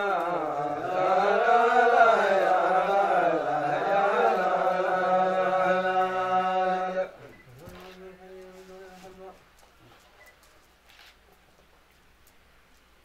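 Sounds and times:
voice chanting: 0.0 - 9.4.

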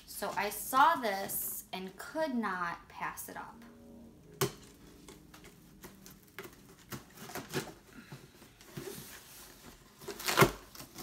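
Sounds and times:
knife cutting packing tape: 10.0 - 11.0.

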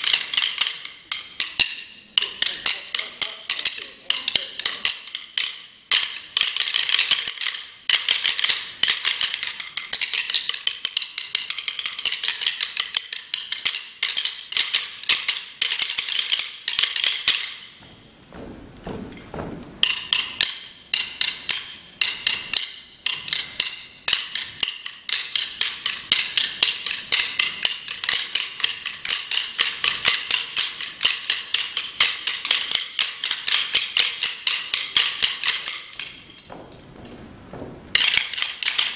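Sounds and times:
drumsticks clicking together: 19.8 - 36.8.

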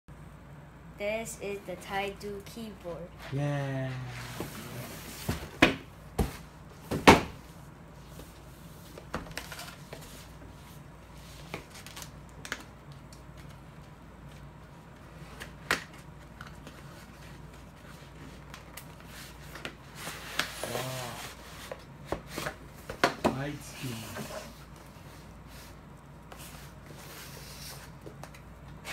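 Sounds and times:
cardboard scraping: 3.9 - 5.5, 19.0 - 22.5.

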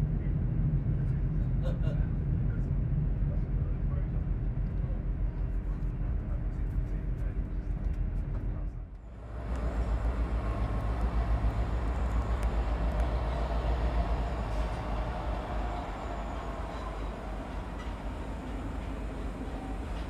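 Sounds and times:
train rumbling: 0.0 - 20.0
train hiss: 9.2 - 20.0.

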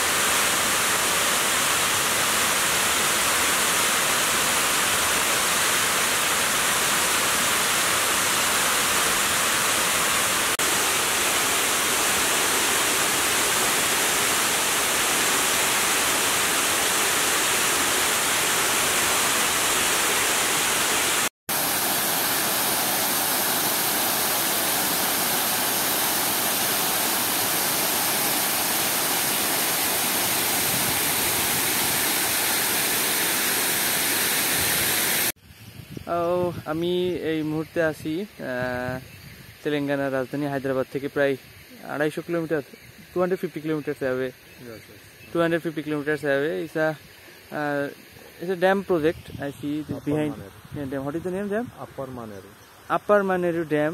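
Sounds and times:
water cascading down dam wall: 0.0 - 35.4.

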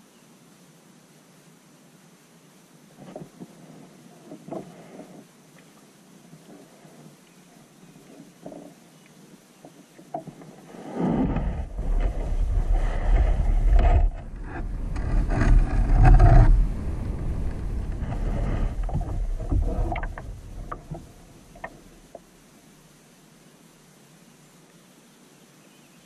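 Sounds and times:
low rumbling microphone noise: 9.4 - 22.5.

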